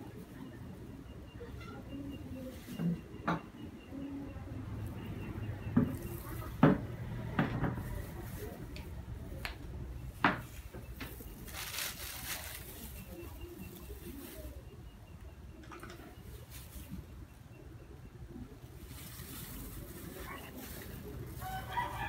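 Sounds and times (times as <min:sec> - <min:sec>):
plastic crinkling: 0:10.5 - 0:14.6, 0:18.8 - 0:22.0.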